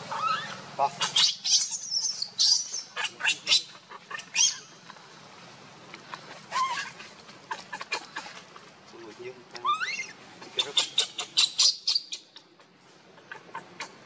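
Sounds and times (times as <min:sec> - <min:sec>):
baby monkey lower cry: 0:00.0 - 0:04.8, 0:06.4 - 0:08.3, 0:09.6 - 0:12.5
baby monkey shrieking: 0:00.0 - 0:04.8, 0:06.5 - 0:08.2, 0:09.6 - 0:12.4.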